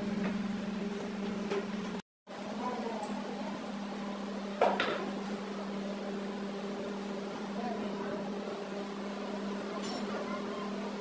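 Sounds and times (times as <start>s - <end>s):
metallic clink of hand tools: 9.8s - 10.3s.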